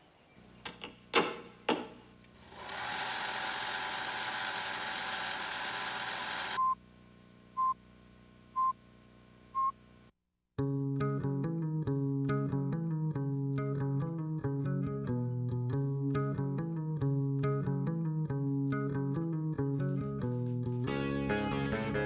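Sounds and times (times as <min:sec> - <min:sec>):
mechanical rattling hum: 0:00.6 - 0:06.6.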